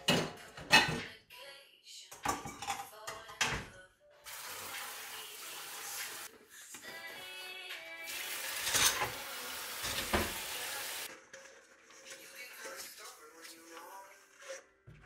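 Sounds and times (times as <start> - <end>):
dishes clinking in sink: 0.0 - 1.1, 2.1 - 3.7, 8.6 - 9.2, 9.8 - 10.5
tap running water: 4.3 - 6.3, 8.1 - 11.1.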